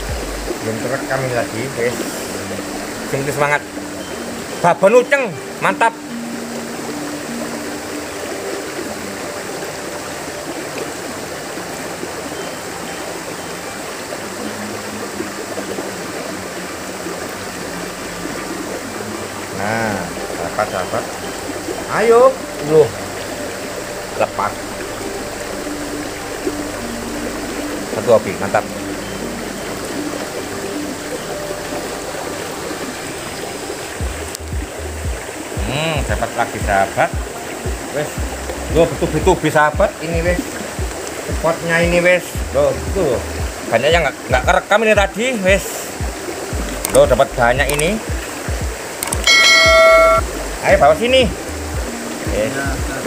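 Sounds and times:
river water rushing through culvert: 0:00.0 - 0:53.0
sharp click: 0:46.8 - 0:47.1, 0:49.0 - 0:49.3.

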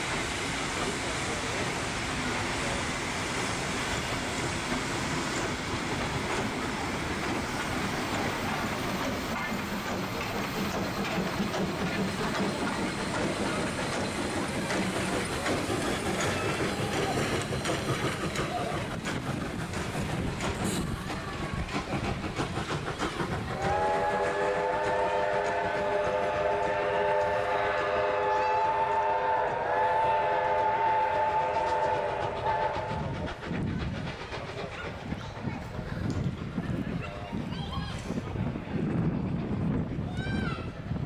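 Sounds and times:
train rolling slowly: 0:00.0 - 0:41.0
wheels clicking over rail joints: 0:04.8 - 0:24.2
wind buffeting microphone: 0:32.2 - 0:41.0.

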